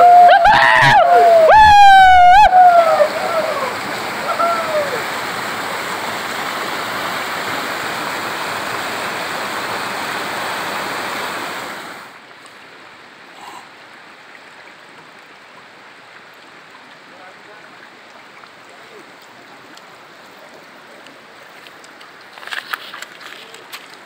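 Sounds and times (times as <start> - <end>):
river rushing over stones: 0.0 - 13.4.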